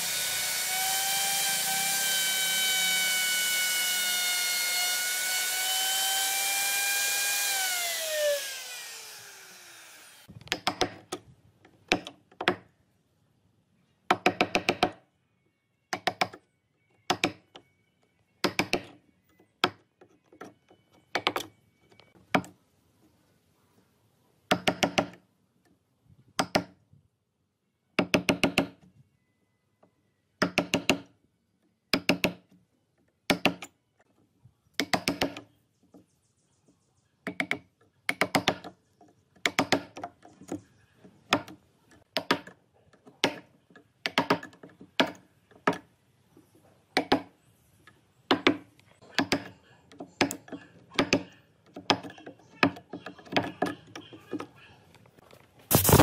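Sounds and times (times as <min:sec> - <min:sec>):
router whining and spinning down: 0:00.0 - 0:10.3, 0:55.7 - 0:56.0.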